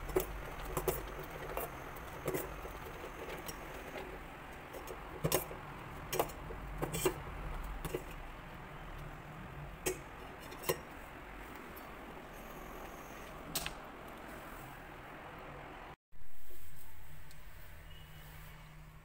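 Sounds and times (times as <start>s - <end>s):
porridge bubbling in a pot: 0.0s - 8.9s.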